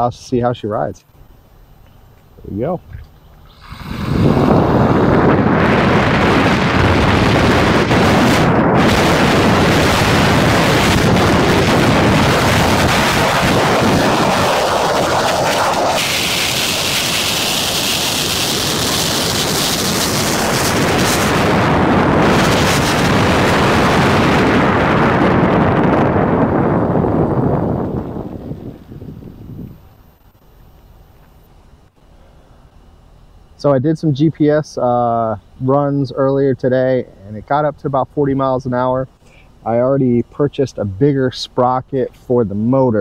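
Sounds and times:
wind buffeting microphone: 0:03.6 - 0:30.3.

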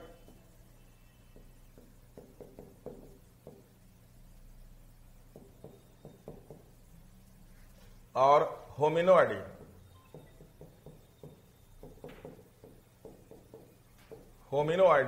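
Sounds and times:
chalk tapping on blackboard: 0:00.1 - 0:00.5, 0:01.2 - 0:03.8, 0:05.3 - 0:06.8, 0:09.5 - 0:14.4.

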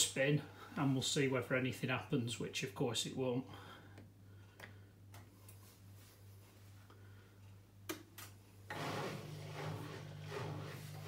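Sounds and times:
drain pump humming: 0:08.7 - 0:11.0.

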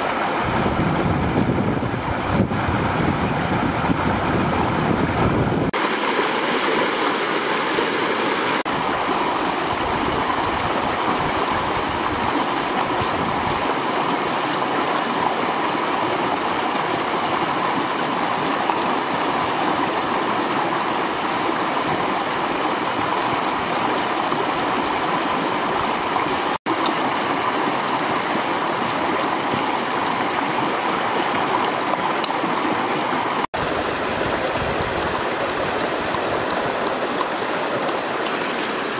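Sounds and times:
river rushing over stones: 0:00.0 - 0:38.9.

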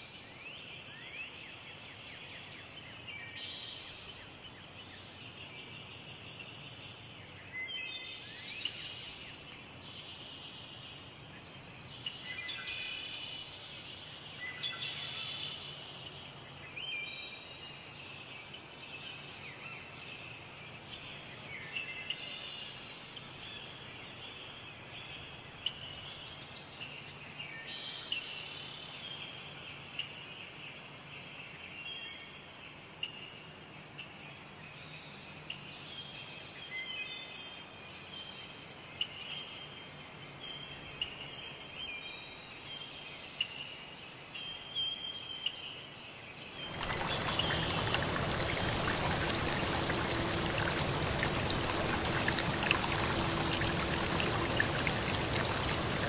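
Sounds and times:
insect chorus trilling: 0:46.6 - 0:56.0.

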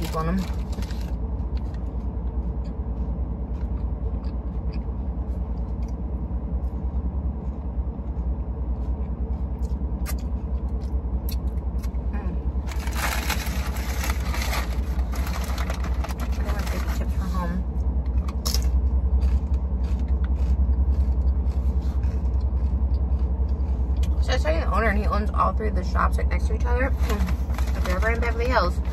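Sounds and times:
low hum in car cabin: 0:00.0 - 0:28.9
rustling: 0:12.6 - 0:17.3, 0:26.9 - 0:28.9.

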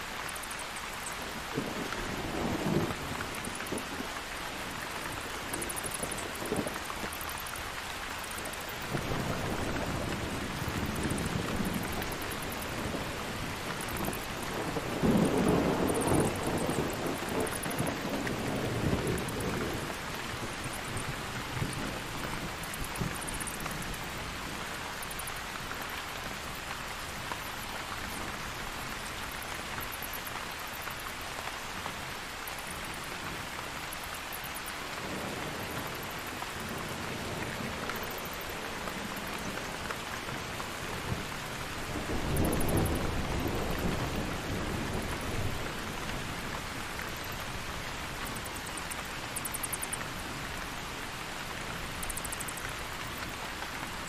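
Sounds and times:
steady rain: 0:00.0 - 0:54.0
low rumble of thunder: 0:01.4 - 0:06.8, 0:08.8 - 0:24.6, 0:34.9 - 0:48.5.

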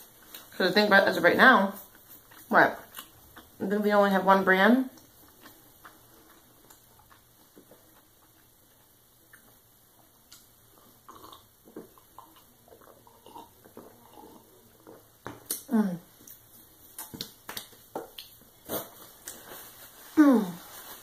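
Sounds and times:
person gulping juice: 0:10.7 - 0:16.2.

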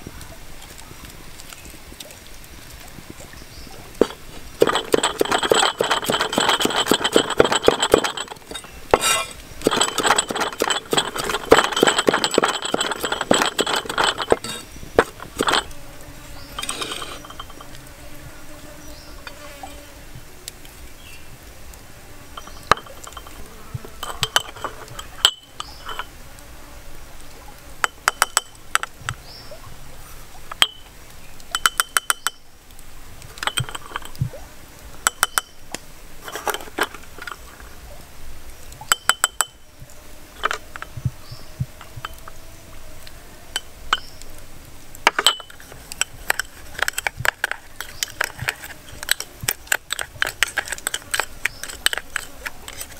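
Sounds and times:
spoon clinking porcelain cups: 0:04.0 - 0:15.7, 0:16.6 - 0:17.8, 0:22.4 - 0:26.1, 0:31.6 - 0:32.4, 0:33.4 - 0:34.1, 0:38.9 - 0:39.6, 0:45.1 - 0:52.9.

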